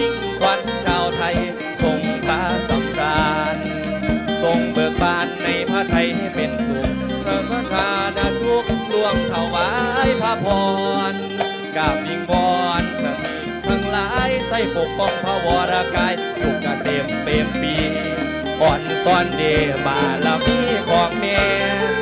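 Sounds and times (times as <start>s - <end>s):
folk ensemble music: 0.0s - 22.0s
steady drum beat: 0.4s - 22.0s.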